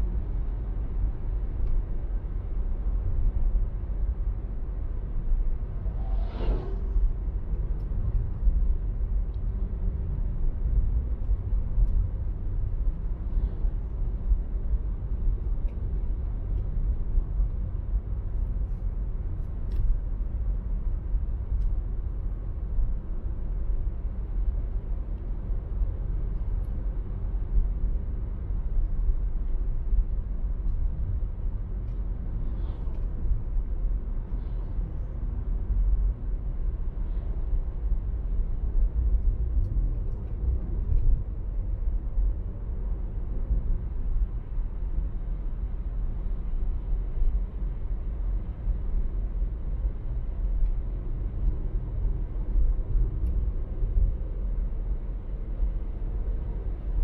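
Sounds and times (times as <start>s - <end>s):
car driving at speed: 5.4s - 8.0s.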